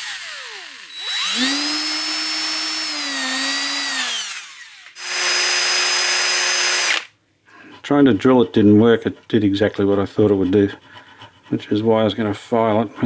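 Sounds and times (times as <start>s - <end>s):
electric drill whining: 0.0s - 7.1s.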